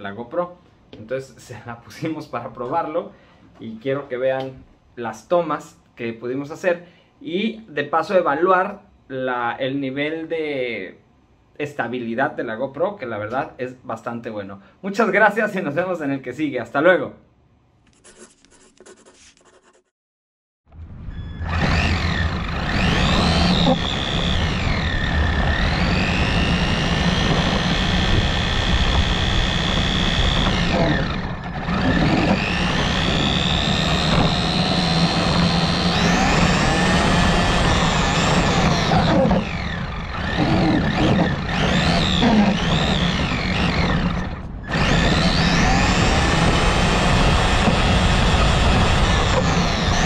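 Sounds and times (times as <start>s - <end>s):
rc car motor whine: 20.8s - 50.0s.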